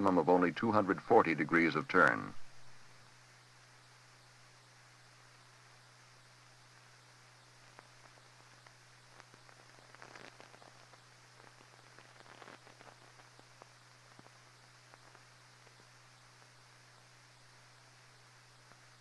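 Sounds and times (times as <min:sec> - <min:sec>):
film hiss: 0:00.0 - 0:19.0
film clicks and crackles: 0:07.6 - 0:15.8.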